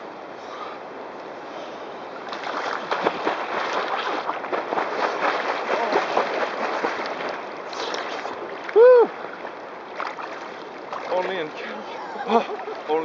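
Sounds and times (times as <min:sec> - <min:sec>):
rush of water: 0:00.0 - 0:13.0
person splashing through water: 0:02.2 - 0:11.8.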